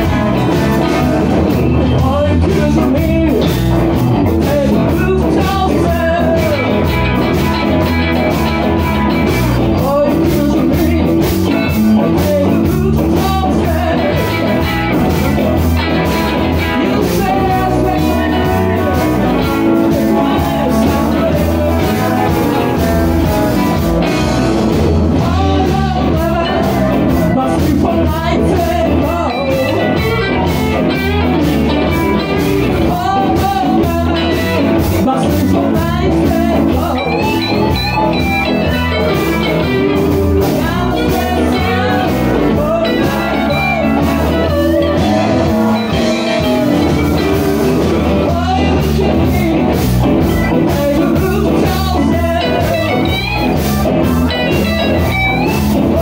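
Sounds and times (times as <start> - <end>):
drum kit: 0.0 - 56.0
electric bass: 0.0 - 56.0
electric guitars: 0.0 - 56.0.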